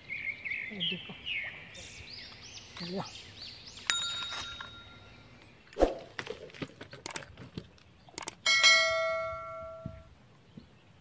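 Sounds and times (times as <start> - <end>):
handling knocks and clicks: 3.9 - 4.9, 6.1 - 8.4
struck metal ringing: 3.9 - 5.2, 8.4 - 10.1.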